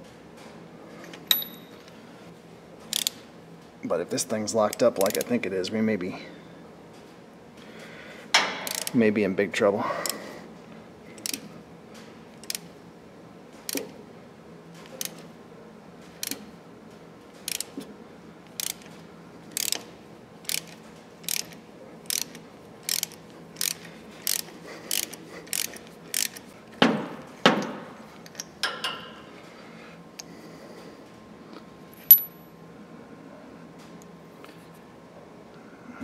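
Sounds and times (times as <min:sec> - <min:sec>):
ratchet wrench clicking: 0:02.9 - 0:03.2, 0:08.6 - 0:09.0, 0:11.2 - 0:11.4, 0:12.4 - 0:12.6, 0:16.2 - 0:16.4, 0:17.5 - 0:17.8, 0:18.6 - 0:18.9, 0:19.5 - 0:26.4.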